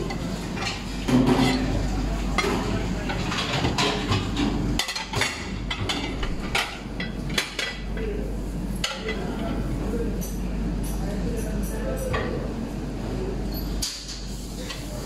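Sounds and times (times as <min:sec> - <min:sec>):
plates clinking against each other: 0:00.0 - 0:08.1.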